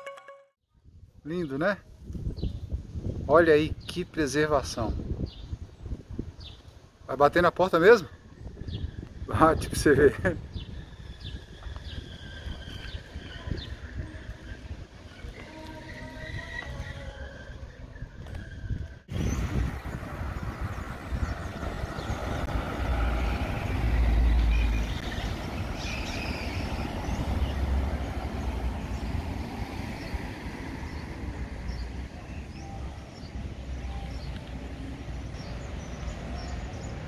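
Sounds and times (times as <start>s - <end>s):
traffic passing: 10.4s - 37.0s.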